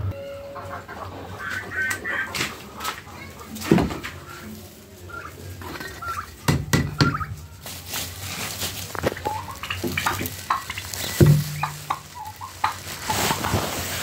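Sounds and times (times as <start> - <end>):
poultry calling: 0.1 - 14.0
plastic sack rustling and scraping: 7.3 - 14.0.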